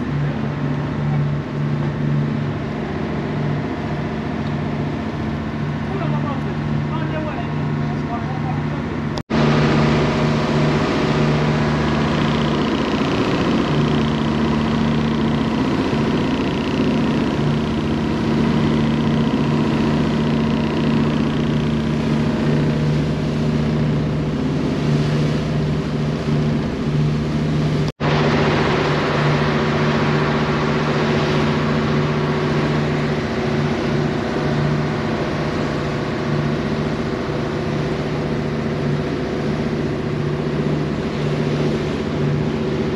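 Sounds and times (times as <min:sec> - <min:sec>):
constant rushing noise: 0:00.0 - 0:42.9
ferry engine drone: 0:00.0 - 0:42.9.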